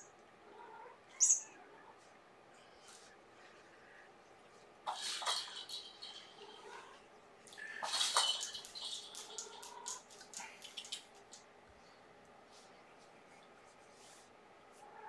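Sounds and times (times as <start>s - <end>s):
small hard objects clicking together: 7.5s - 11.5s.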